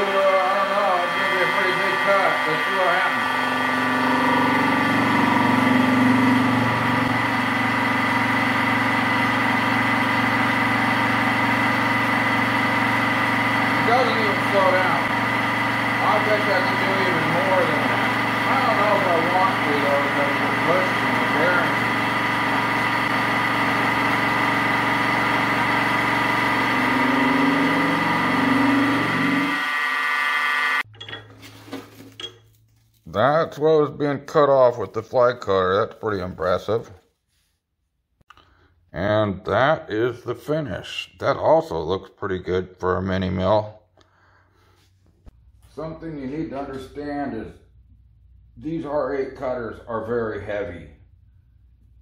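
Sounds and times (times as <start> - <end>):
milling machine hum with high whine: 0.0 - 30.8.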